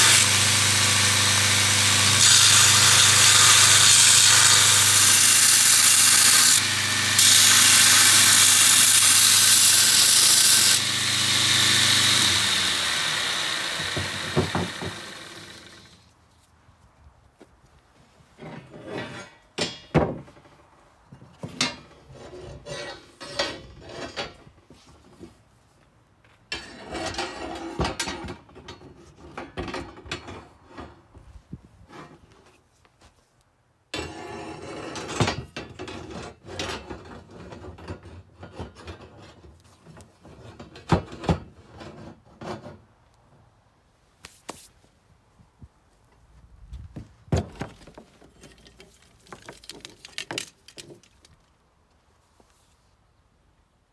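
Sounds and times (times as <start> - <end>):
metal scraping on wood: 18.4 - 19.5, 21.3 - 25.3, 31.9 - 32.6, 34.0 - 42.8
cast iron parts knocking and clanking: 18.4 - 20.5, 21.2 - 22.0.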